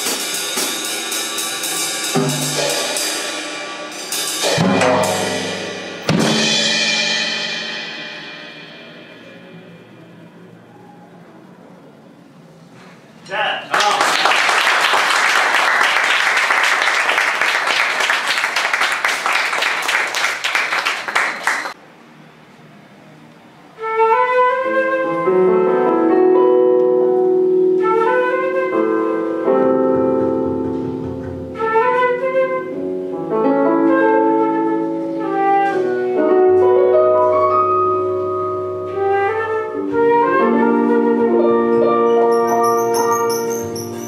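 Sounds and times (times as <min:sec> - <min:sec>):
audience applauding: 0:13.7 - 0:21.8
flute melody: 0:23.7 - 0:44.0
keyboard chords: 0:24.7 - 0:44.0
double bass notes: 0:34.9 - 0:44.0.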